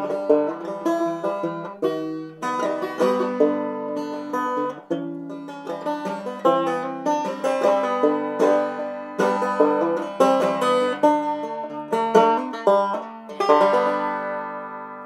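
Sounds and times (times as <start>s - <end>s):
bluegrass plucked string music: 0.0s - 15.0s.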